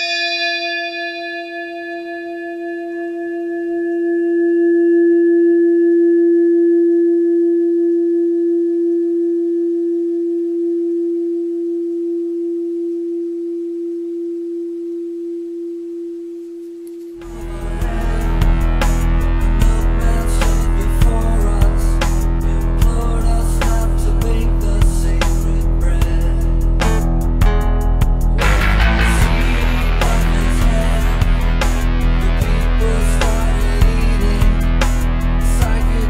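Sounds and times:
music with heavy low beat: 0:17.2 - 0:36.0.

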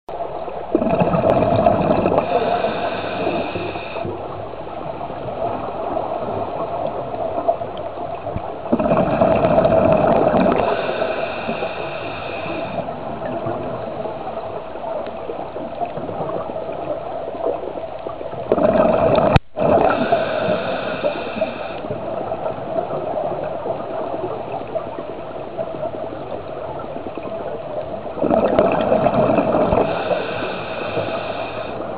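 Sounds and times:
exhaled bubbles bursting: 0:00.7 - 0:04.0, 0:08.6 - 0:11.0, 0:18.4 - 0:21.1, 0:28.0 - 0:30.2.

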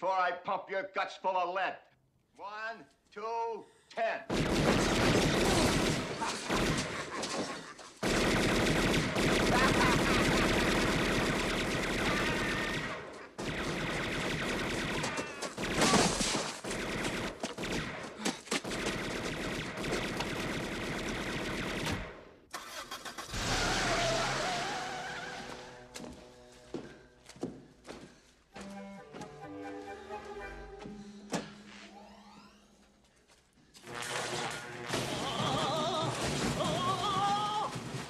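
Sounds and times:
rapid machine gun fire: 0:04.3 - 0:07.2, 0:08.0 - 0:22.2.

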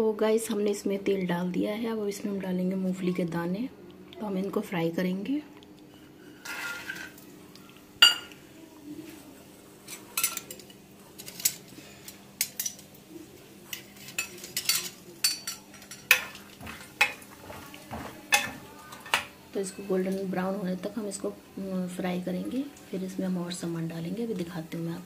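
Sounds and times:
metal spoon scraping a pan: 0:05.9 - 0:07.2, 0:13.7 - 0:19.8.

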